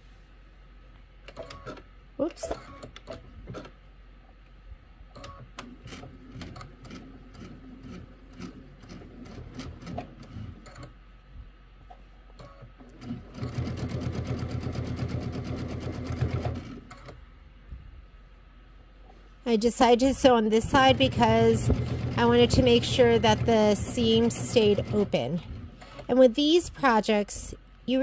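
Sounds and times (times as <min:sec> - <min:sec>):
sewing machine stitching: 0:05.2 - 0:10.9, 0:12.4 - 0:17.2, 0:20.6 - 0:26.1.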